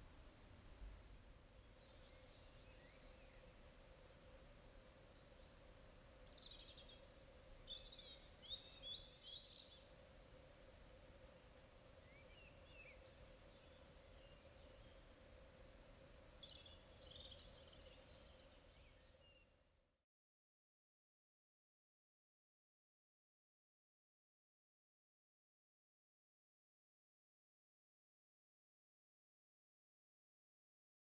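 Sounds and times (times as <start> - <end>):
faint steady hum: 0.0 - 20.0
songbird chirps and warbles: 0.0 - 20.0.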